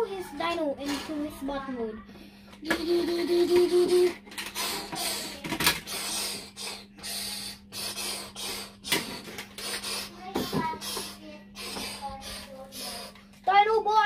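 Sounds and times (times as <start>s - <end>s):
child making hissing mouth sounds: 2.6s - 13.2s.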